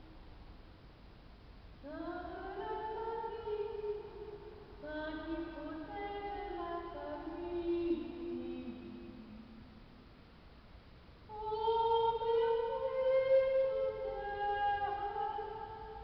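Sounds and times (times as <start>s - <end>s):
woman singing in reverberant church: 1.8s - 9.8s, 11.3s - 16.0s.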